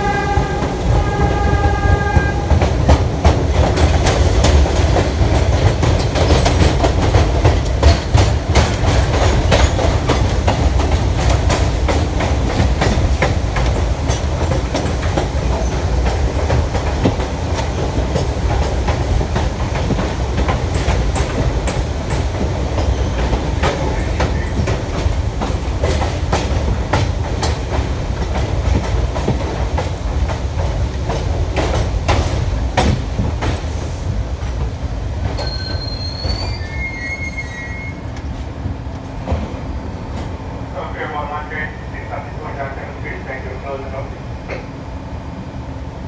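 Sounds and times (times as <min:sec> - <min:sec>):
train rumbling on track: 0:00.0 - 0:46.0
wheels clicking over rail joints: 0:01.6 - 0:33.6
high brake squeal: 0:35.4 - 0:38.1.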